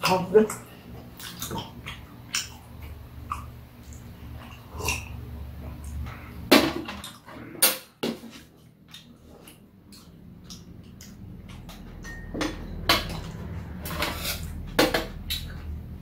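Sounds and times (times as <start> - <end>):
metal utensils clinking on dishes: 11.9 - 15.5.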